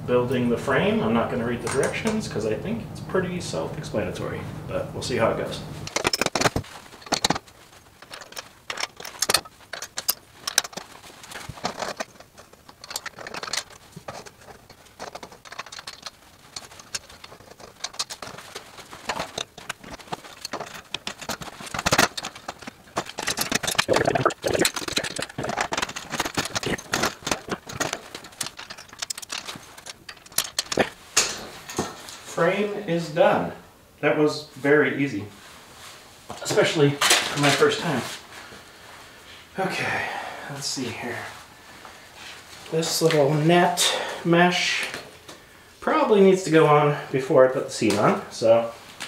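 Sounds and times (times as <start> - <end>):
metal tubes clinking and rattling: 5.9 - 32.3.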